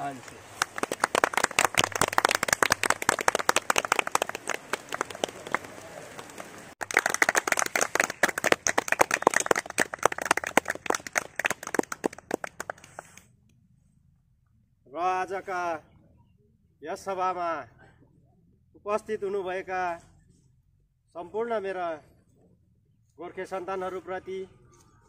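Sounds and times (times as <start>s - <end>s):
hands clapping: 0.1s - 13.3s.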